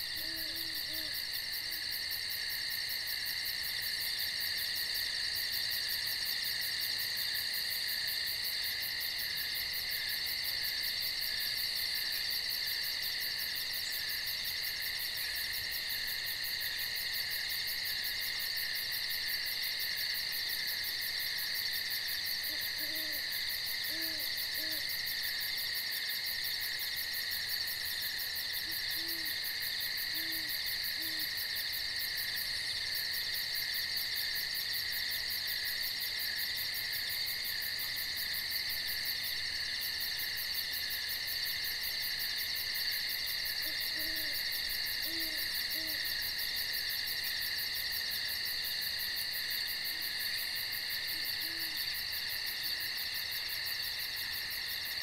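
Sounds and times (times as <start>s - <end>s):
crickets and katydids chirping: 0.0s - 55.0s
owl hooting: 0.1s - 1.2s, 22.5s - 23.2s, 23.9s - 24.9s, 28.6s - 29.3s, 30.1s - 31.3s, 43.6s - 44.4s, 45.0s - 46.0s.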